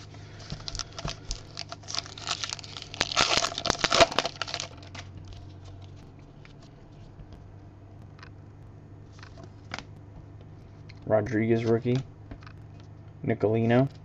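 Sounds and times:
wrapper tearing and crinkling: 0.4 - 5.4.

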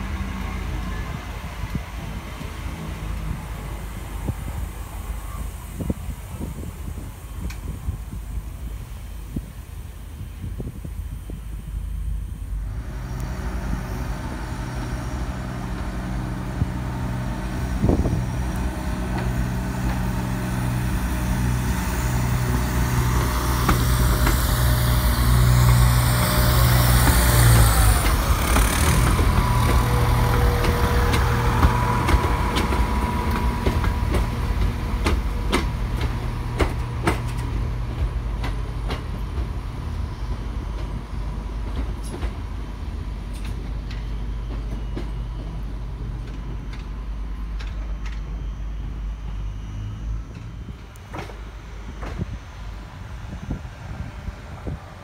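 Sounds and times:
train diesel engine hum: 0.0 - 55.0
train wheels rolling: 0.0 - 55.0
wheels clicking over rail joints: 14.7 - 48.4.

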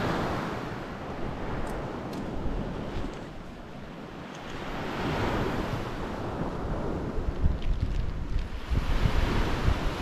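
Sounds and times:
sea surf washing on shore: 0.0 - 10.0
wind buffeting microphone: 0.0 - 10.0.

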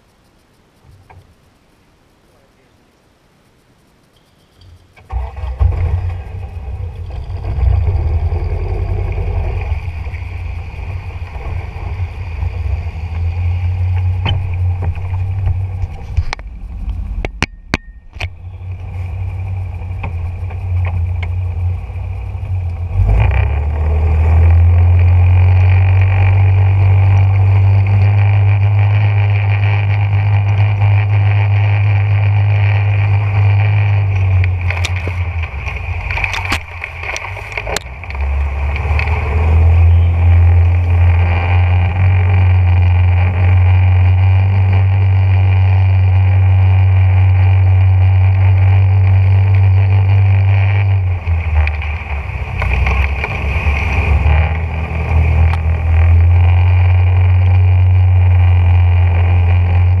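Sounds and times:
sharp clicks: 0.0 - 12.5, 13.1 - 21.4, 25.0 - 43.4
boat motor humming: 4.4 - 60.0.

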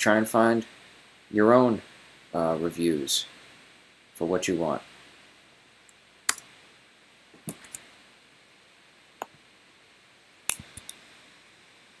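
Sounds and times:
sharp computer clicks: 7.5 - 7.8.

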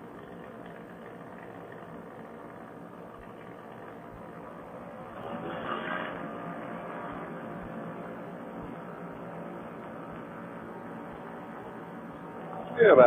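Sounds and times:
engine and propeller drone: 0.0 - 13.0.

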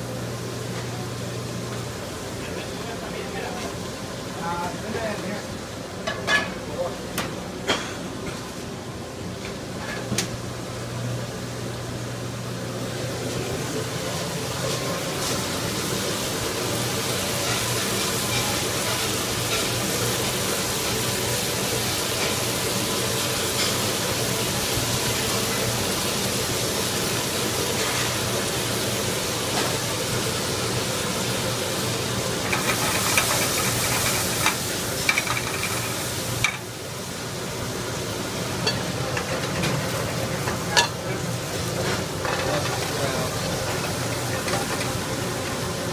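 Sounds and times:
food sizzling in pans: 0.0 - 45.9
metal pans clinking: 6.0 - 6.6, 32.5 - 36.6, 38.6 - 41.0, 41.8 - 45.0.

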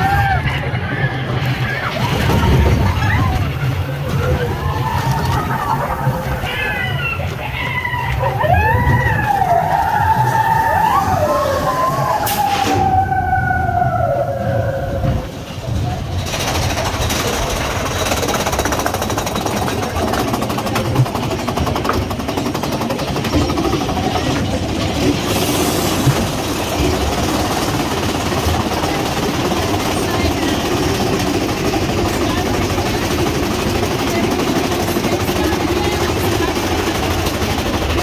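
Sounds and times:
riders yelling: 0.0 - 15.1
roller coaster rumbling and rattling: 0.0 - 38.0.

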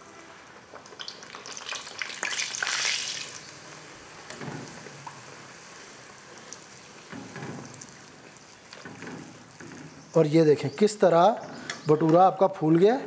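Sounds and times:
dough sizzling in hot oil: 0.6 - 10.2.

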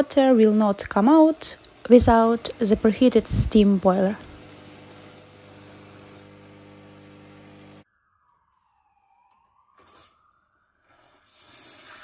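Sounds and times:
espresso machine pump humming: 0.0 - 7.8
steam wand hissing: 0.0 - 7.8, 11.2 - 12.0.

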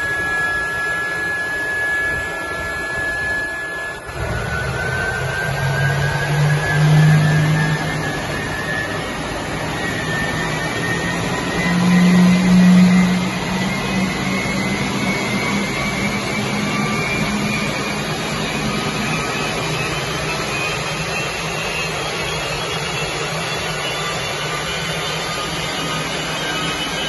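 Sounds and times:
compressor whine rising: 0.0 - 27.0
jet engine roaring: 0.0 - 27.0.

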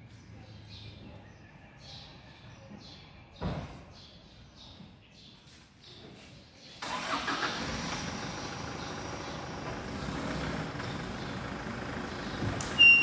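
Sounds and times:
vehicle engine running: 7.0 - 13.0
short high beep: 12.8 - 13.0.

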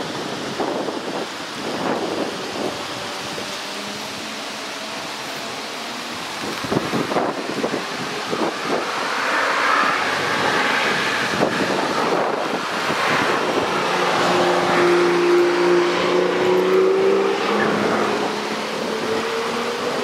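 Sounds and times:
car driving past: 8.7 - 20.0.

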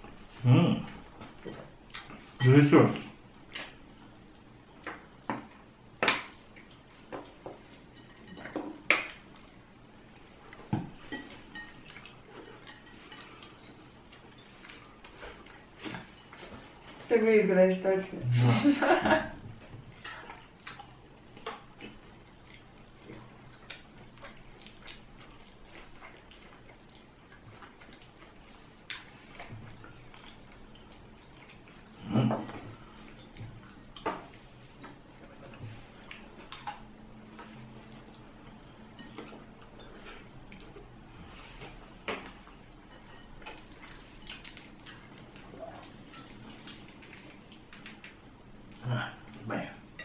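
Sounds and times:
chewing and lip smacks: 1.2 - 2.4, 19.9 - 31.9, 32.6 - 40.9, 41.6 - 49.4
cutlery clinking on plates: 7.5 - 9.1
people eating: 18.2 - 50.0.

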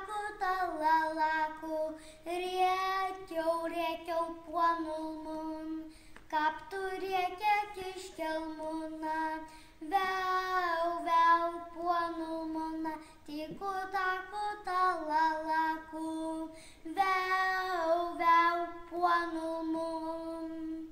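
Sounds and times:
girl singing folk song: 0.0 - 20.9.

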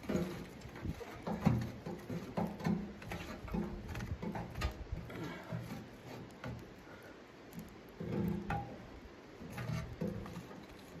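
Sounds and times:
stick knocking inside wood stove: 0.0 - 5.0.

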